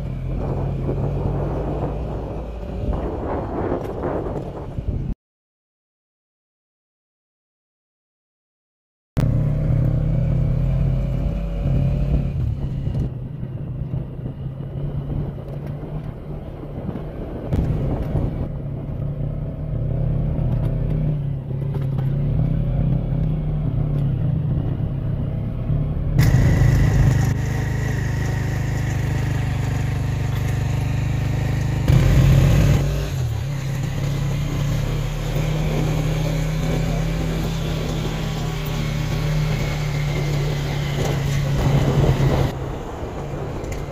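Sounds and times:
motorcycle engine running: 9.2 - 43.9.

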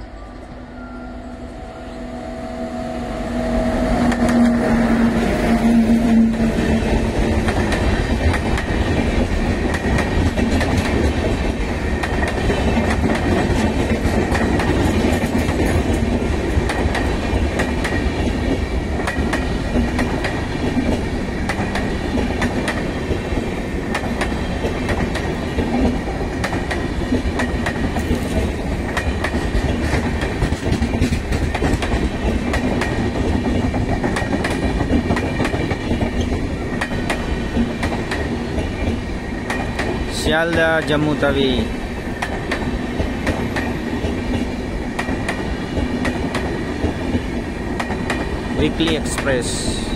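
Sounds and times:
train wheels on rails: 0.0 - 49.9
wheels clacking over rail joints: 6.1 - 41.2.

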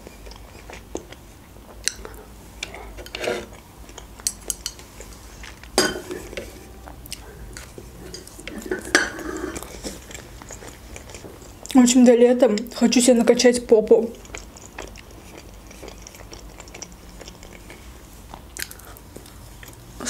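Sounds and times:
chewing kiwi: 6.4 - 12.8, 13.9 - 20.0.

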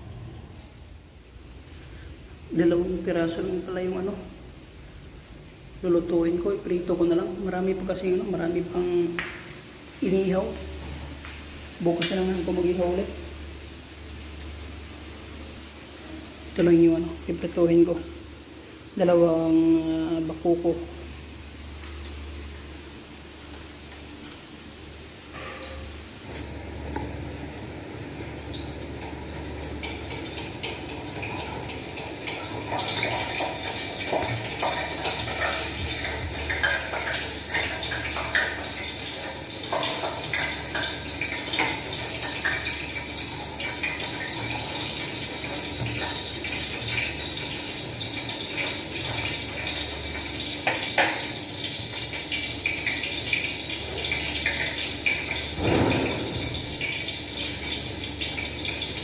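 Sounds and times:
running tap water: 25.3 - 59.0.

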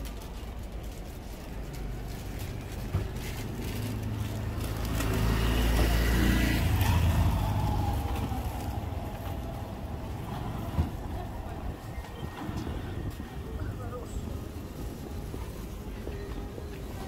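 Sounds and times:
motor vehicle passing by: 2.0 - 13.4.

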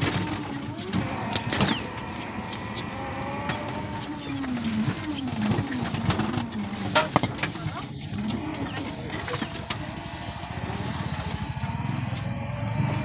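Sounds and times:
road and wind noise: 0.0 - 13.0
vehicle engine running: 0.0 - 13.0.

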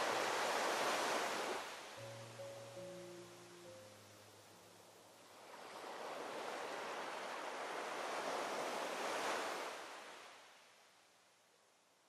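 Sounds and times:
waves breaking: 0.0 - 2.0, 5.0 - 10.6.

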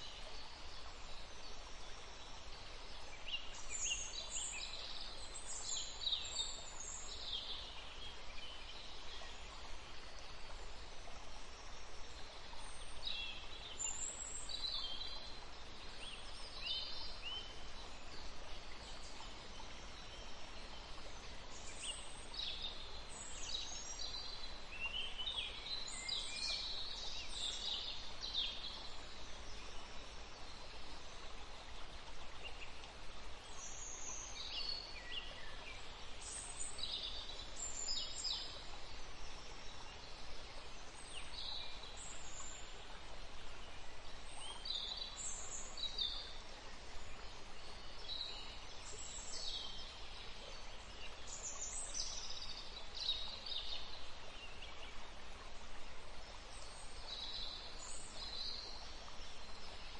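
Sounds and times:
steady soft hiss: 0.0 - 59.9.

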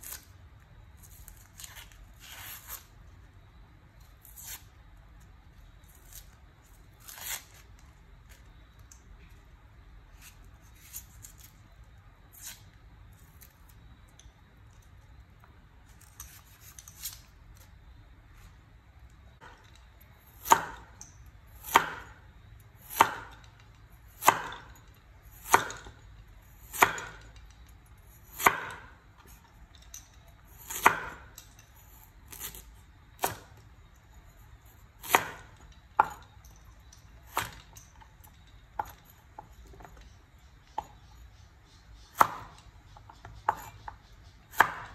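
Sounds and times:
cleaver chopping on wooden board: 20.4 - 20.9, 21.6 - 22.1, 22.9 - 23.4, 24.2 - 24.6, 25.4 - 25.9, 26.7 - 27.2, 28.4 - 28.8, 30.7 - 31.2, 35.0 - 36.2, 42.1 - 42.6, 44.5 - 44.9.

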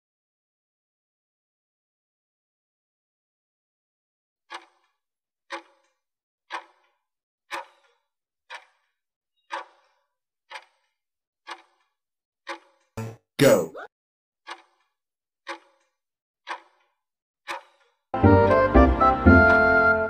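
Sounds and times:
clock ticking: 4.5 - 4.9, 5.5 - 5.9, 6.5 - 6.8, 7.5 - 7.8, 8.5 - 8.8, 9.5 - 9.9, 10.5 - 10.8, 11.5 - 11.8, 12.5 - 13.6, 14.5 - 14.8, 15.5 - 15.8, 16.5 - 16.8.

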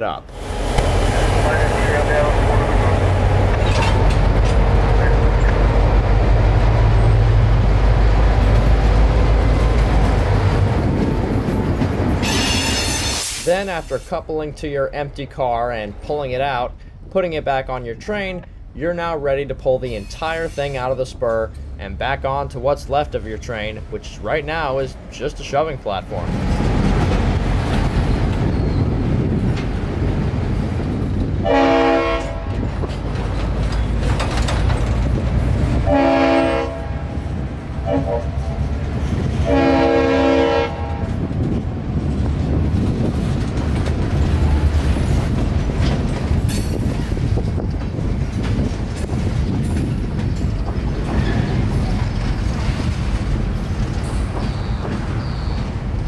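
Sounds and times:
train wheels rumbling on rails: 0.2 - 14.3, 19.4 - 56.0
locomotive horn blasts: 12.2 - 13.2, 31.4 - 32.6, 35.8 - 37.2, 37.8 - 38.4, 39.4 - 41.1.

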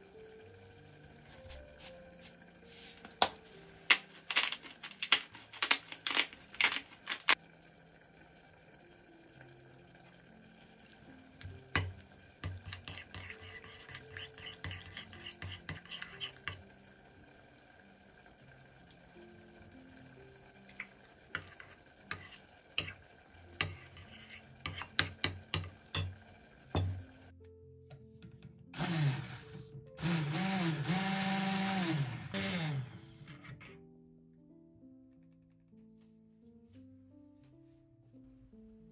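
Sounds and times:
spoon clinking on ceramic bowl: 23.6 - 27.0.

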